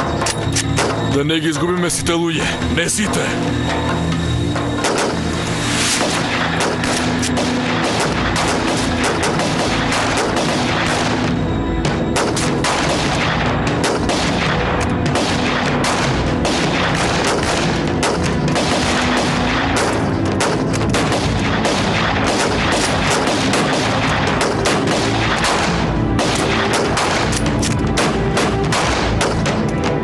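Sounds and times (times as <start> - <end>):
film score music: 0.0 - 30.0
rifle gunfire: 4.8 - 5.3, 6.0 - 11.4, 12.2 - 29.7.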